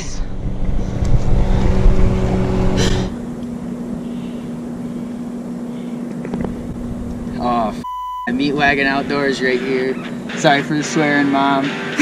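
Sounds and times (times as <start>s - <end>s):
boat motor humming: 0.0s - 10.8s.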